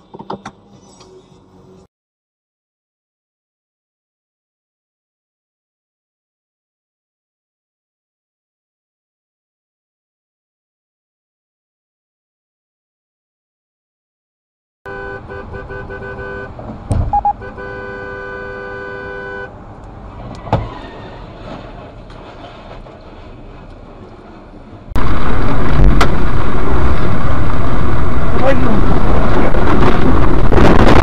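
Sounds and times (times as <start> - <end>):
car horn honking: 14.9 - 19.6
road and wind noise rushing: 14.9 - 31.0.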